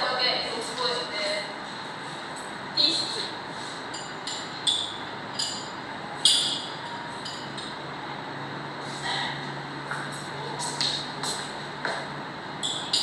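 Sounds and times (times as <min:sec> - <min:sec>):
ceramic cups clinking: 0:03.9 - 0:07.8, 0:12.6 - 0:13.0.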